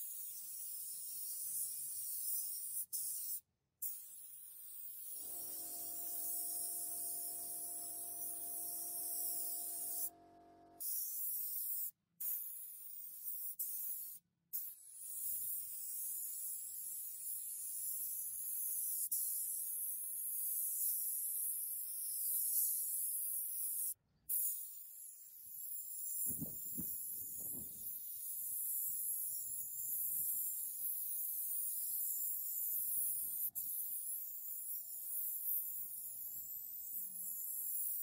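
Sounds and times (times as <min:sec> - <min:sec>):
paint spray gun hissing: 0:05.0 - 0:10.1.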